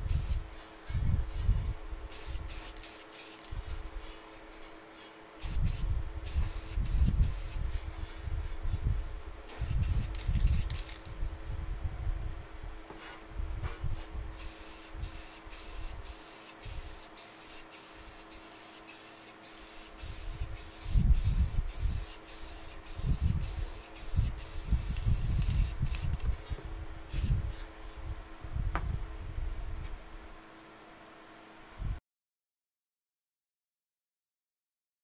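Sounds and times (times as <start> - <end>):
aerosol spray can hissing bursts: 0.0 - 0.4, 2.1 - 4.2, 5.4 - 7.8, 9.5 - 11.1, 14.4 - 26.2, 27.1 - 27.4
low bumps and knocks: 28.7 - 29.0.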